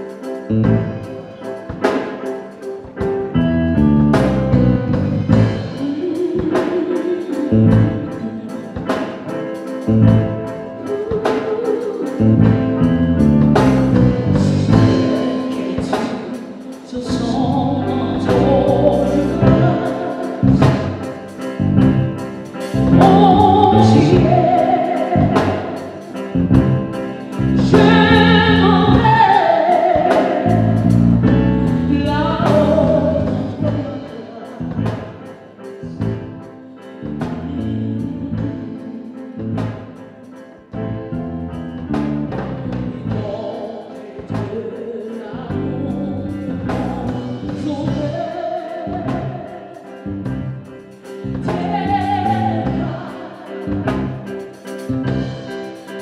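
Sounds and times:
instrumental accompaniment with drums: 0:00.0 - 0:37.7, 0:48.9 - 0:56.0
woman singing into microphone: 0:05.4 - 0:09.7, 0:10.5 - 0:12.9, 0:14.2 - 0:21.6, 0:22.6 - 0:31.0, 0:31.7 - 0:40.4, 0:43.0 - 0:50.1, 0:51.1 - 0:54.6.

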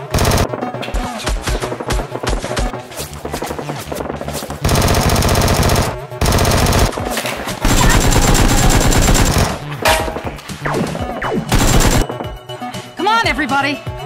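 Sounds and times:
automatic gunfire bursts: 0:00.0 - 0:00.5, 0:04.7 - 0:07.0, 0:07.6 - 0:09.6, 0:11.5 - 0:12.1.

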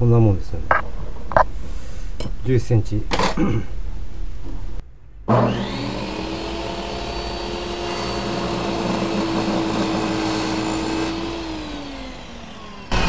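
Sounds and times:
table saw cutting wood: 0:05.3 - 0:13.0.

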